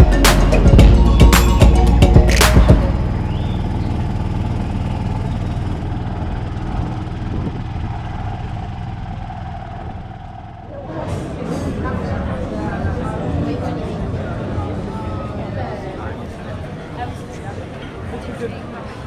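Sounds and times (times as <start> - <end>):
background music: 0.0 - 3.6
engine humming: 0.0 - 18.1.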